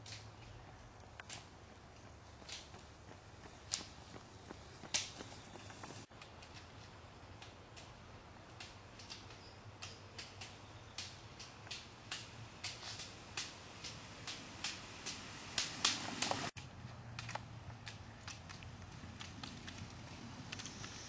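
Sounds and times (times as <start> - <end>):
ski poles clicking on asphalt: 0.0 - 21.0.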